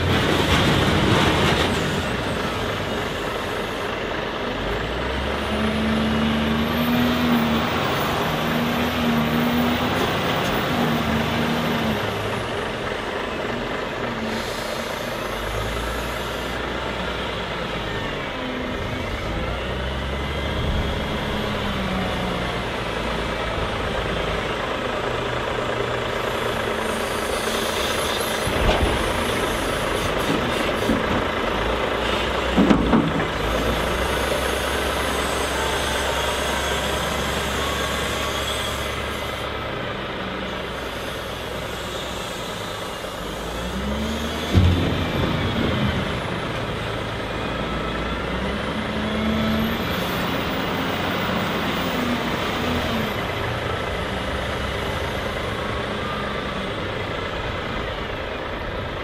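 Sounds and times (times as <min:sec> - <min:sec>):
wheel loader diesel engine revving: 0:00.0 - 0:59.0.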